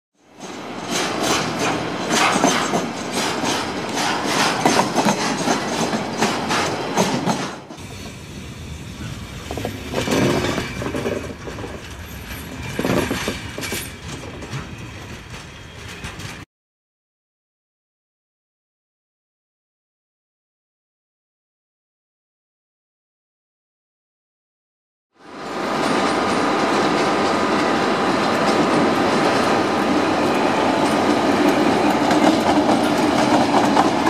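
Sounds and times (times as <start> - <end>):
train wheels clicking over rail joints: 0.2 - 16.4, 25.4 - 34.0.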